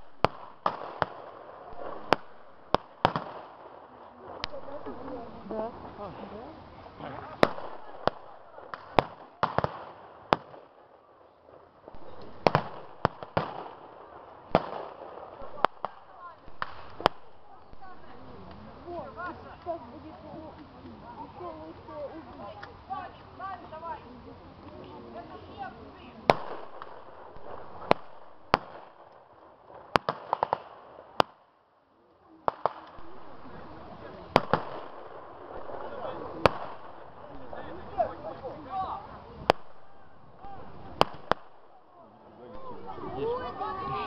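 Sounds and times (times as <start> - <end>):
rifle shots with echo: 0.0 - 5.0, 7.4 - 10.7, 11.9 - 18.0, 26.3 - 29.1, 29.8 - 31.4, 34.3 - 38.1, 39.4 - 41.9.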